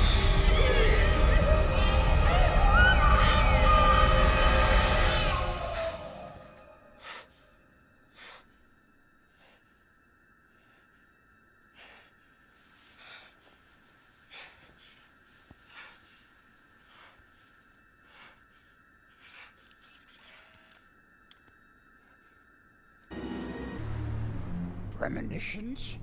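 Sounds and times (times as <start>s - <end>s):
man breathing hard: 5.8s - 20.4s.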